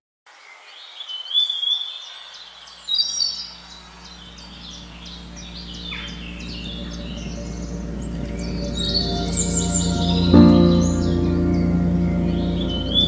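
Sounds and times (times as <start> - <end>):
birds chirping: 1.1 - 13.0
low music drone: 3.9 - 13.0.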